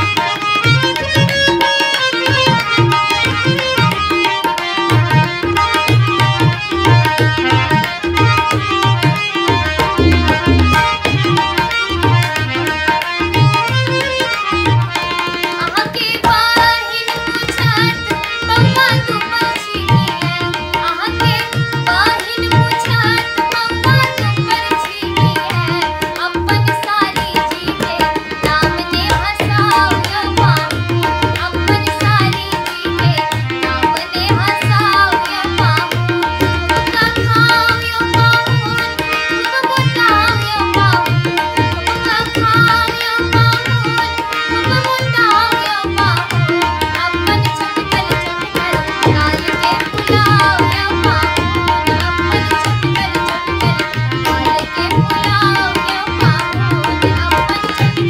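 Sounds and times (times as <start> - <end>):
harmonium held notes: 0.0 - 58.0
tabla playing: 0.0 - 58.0
young woman singing a folk song: 15.6 - 58.0.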